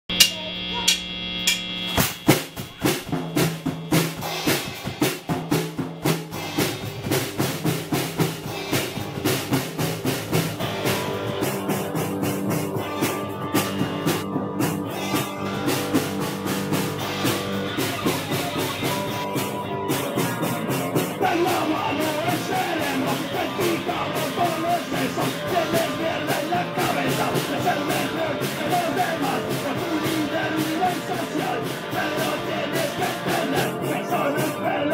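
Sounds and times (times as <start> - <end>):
electric bass: 0.0 - 34.9
drum kit beat: 0.1 - 34.9
electric guitar: 0.1 - 34.9
man singing: 21.0 - 34.9.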